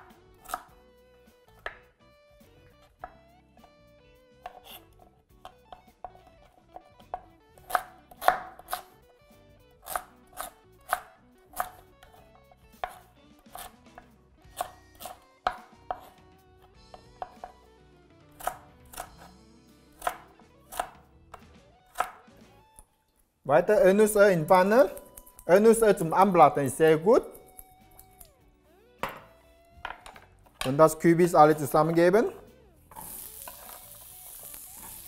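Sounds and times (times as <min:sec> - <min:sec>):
knife chopping on wooden board: 0:00.0 - 0:00.7, 0:04.4 - 0:08.9, 0:09.8 - 0:17.6, 0:18.4 - 0:19.3, 0:20.0 - 0:22.3.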